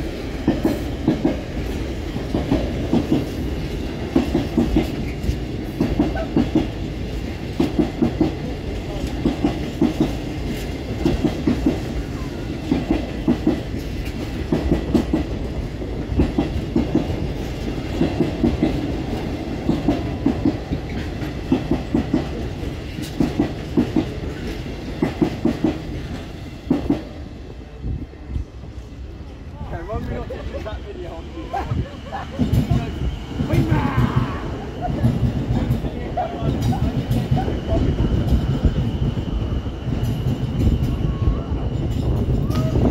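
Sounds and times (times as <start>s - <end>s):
train wheels clattering over joints: 0.0s - 27.2s, 31.7s - 42.9s
train rumble: 0.0s - 42.9s.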